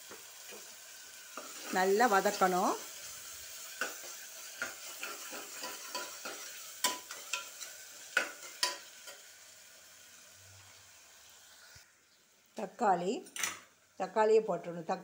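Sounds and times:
onions sizzling in oil: 0:00.0 - 0:15.0
spoon scraping and knocking pot: 0:03.8 - 0:08.9.

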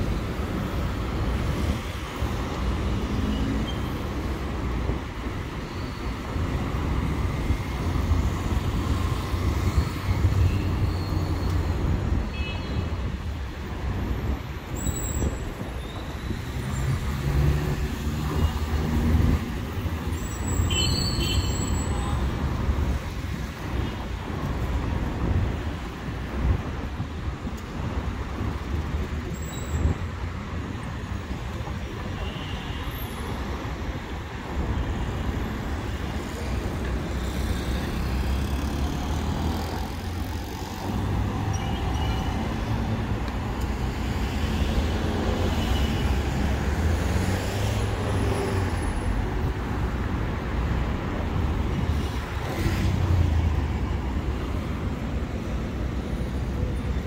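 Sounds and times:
cars passing: 0:15.4 - 0:29.2, 0:33.2 - 0:57.0.

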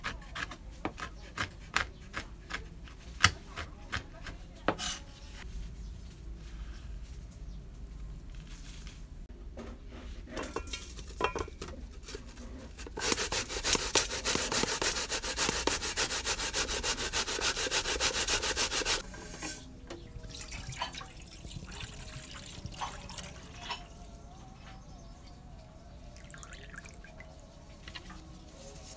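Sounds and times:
coconut grating on metal grater: 0:12.0 - 0:19.0.

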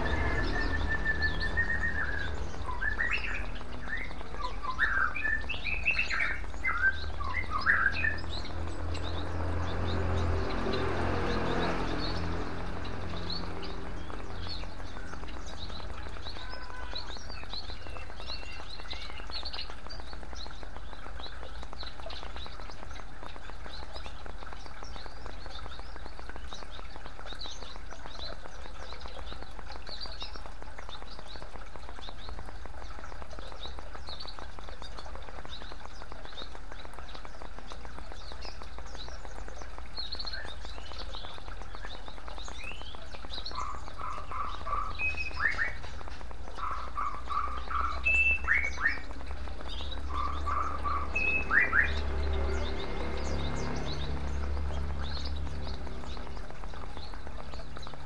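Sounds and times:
bird chirps: 0:00.0 - 0:58.0
loud bird calls: 0:00.0 - 0:58.0
water trickling and splashing: 0:00.0 - 0:58.0.

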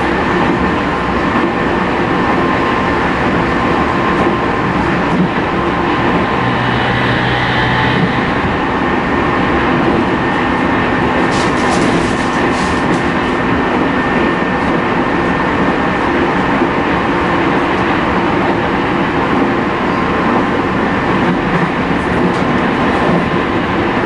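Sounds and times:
train wheels rumbling on rail: 0:00.0 - 0:24.0
whining inverter and motors: 0:05.4 - 0:11.0.

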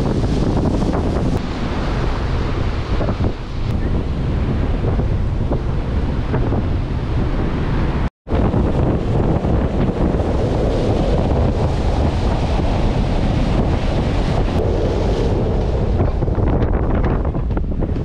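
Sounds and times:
wind blasting across microphone: 0:00.0 - 0:18.0
water rushing: 0:07.2 - 0:17.9.

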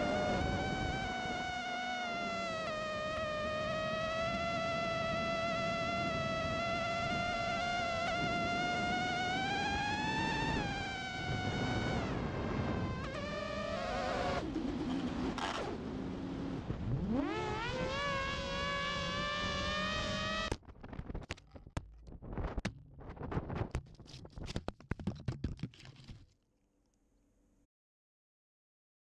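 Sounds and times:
quadcopter propellers whining: 0:00.0 - 0:16.1.

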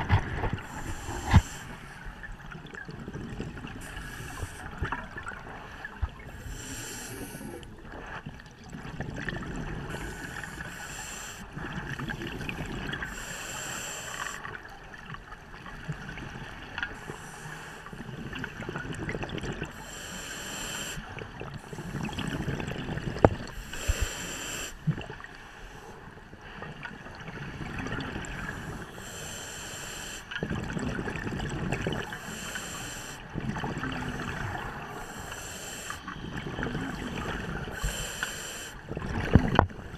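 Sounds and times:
regulator hiss on inhale: 0:00.6 - 0:02.0, 0:03.8 - 0:04.9, 0:06.4 - 0:07.6, 0:09.9 - 0:11.5, 0:13.1 - 0:14.5, 0:17.0 - 0:18.0, 0:19.7 - 0:21.1, 0:23.5 - 0:24.8, 0:28.7 - 0:30.3, 0:32.1 - 0:33.3, 0:34.8 - 0:36.2, 0:37.6 - 0:38.8
bubbles rumbling on exhale: 0:18.3 - 0:19.7, 0:30.4 - 0:32.1, 0:38.9 - 0:39.9.

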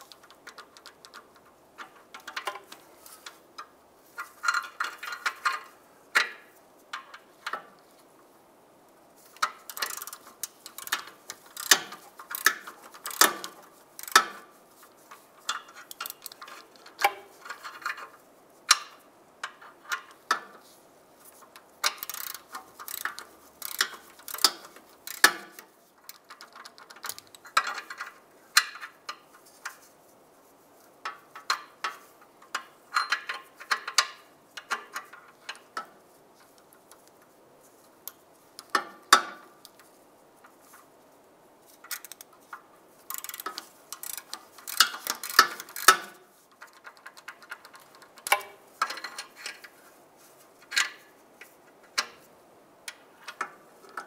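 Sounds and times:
hand ratchet clicking: 0:09.4 - 0:14.4, 0:15.5 - 0:16.6, 0:21.8 - 0:28.0, 0:41.9 - 0:42.3, 0:43.1 - 0:49.3.

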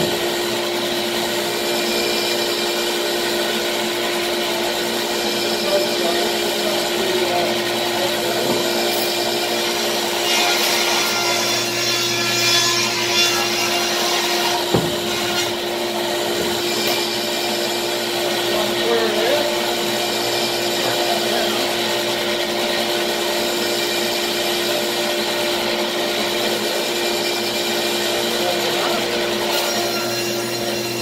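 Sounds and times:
table saw ripping wood: 0:08.2 - 0:18.1
sharp knock: 0:14.7 - 0:15.2.

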